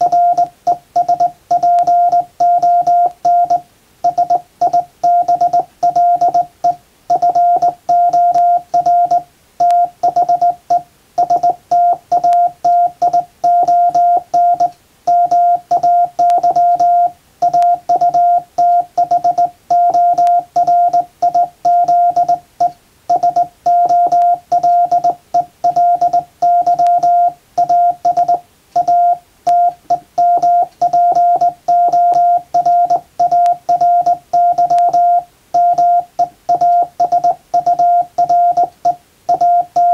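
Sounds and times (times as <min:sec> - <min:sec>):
morse code beeps: 0:00.0 - 0:39.9.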